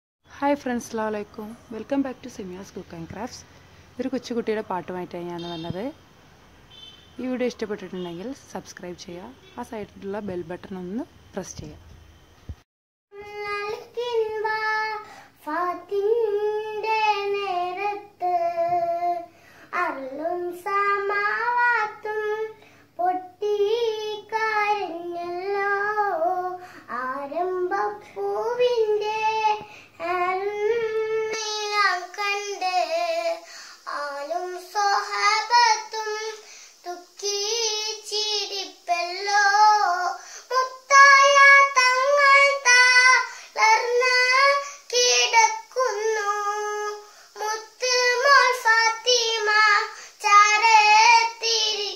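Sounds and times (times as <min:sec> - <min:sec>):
girl singing solo: 0:13.2 - 0:51.9.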